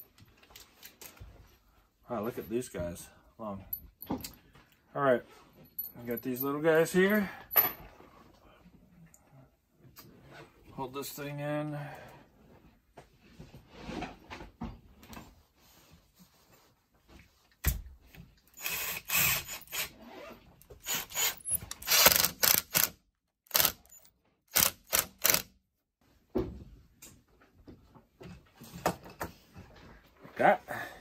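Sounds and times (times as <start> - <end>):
cordless drill driving screws: 18.5 - 20.0, 20.8 - 25.5.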